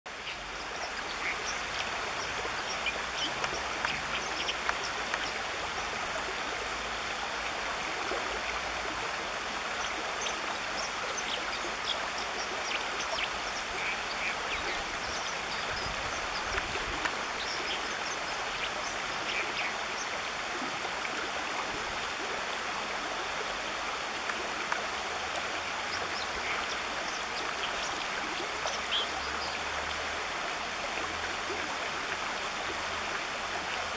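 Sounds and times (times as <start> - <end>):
high water plinks: 0.1 - 22.2
stream rushing over stones: 0.1 - 33.9.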